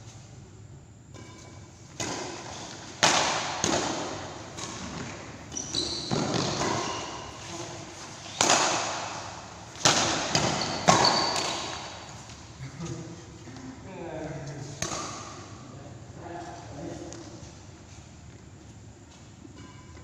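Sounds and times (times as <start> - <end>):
racket hitting shuttlecock: 1.2 - 12.4, 14.8 - 15.6
shoes squeaking on court: 4.0 - 12.6.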